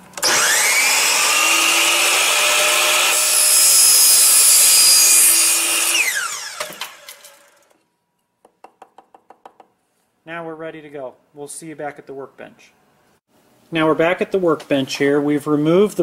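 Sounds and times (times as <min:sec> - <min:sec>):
miter saw running: 0:00.2 - 0:07.7
saw cutting through aluminum: 0:00.2 - 0:07.8.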